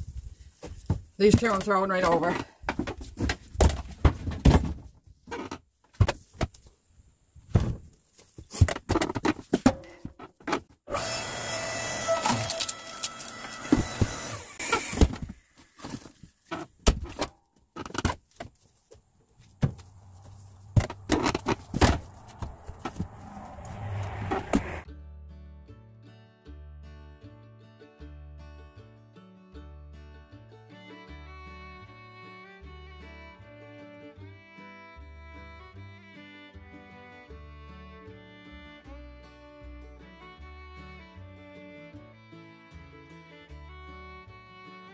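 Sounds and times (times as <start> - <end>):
firewood knocking and clattering: 19.4 - 23.2
steady rushing sound: 21.9 - 24.9.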